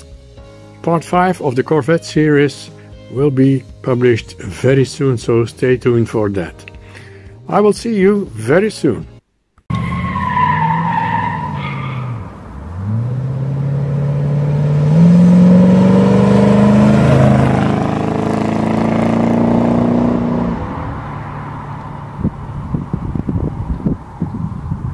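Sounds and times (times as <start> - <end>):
car engine accelerating: 9.7 - 24.7.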